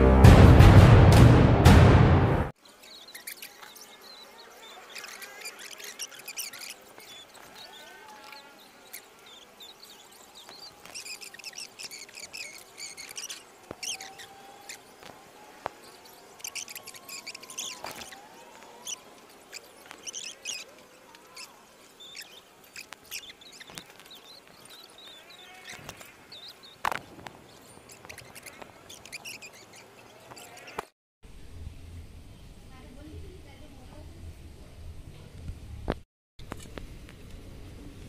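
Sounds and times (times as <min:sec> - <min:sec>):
faint high chirping: 0:02.6 - 0:30.8.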